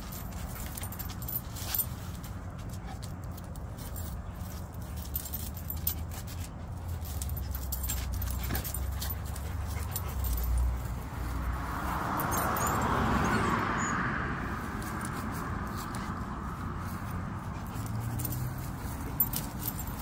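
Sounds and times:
passing car tyre noise: 0:00.0 - 0:20.0
dogs whimpering: 0:12.2 - 0:14.1.

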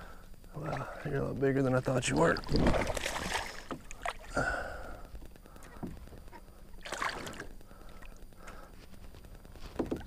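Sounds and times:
water lapping around a kayak: 0:00.0 - 0:10.0.

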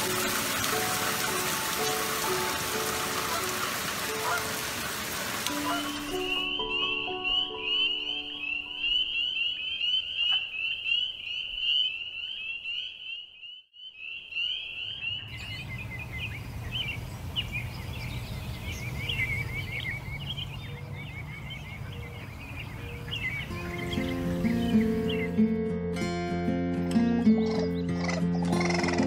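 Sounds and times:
birds chirping: 0:00.0 - 0:25.5, 0:27.2 - 0:29.0
frogs peeping chorus: 0:05.5 - 0:25.4.

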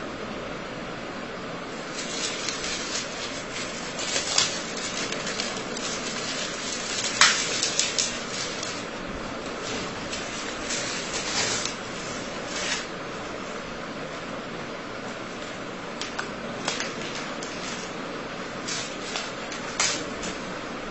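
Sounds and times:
steady background hiss: 0:00.0 - 0:20.9
paper rustling and scraping: 0:01.8 - 0:12.9, 0:16.6 - 0:20.5.

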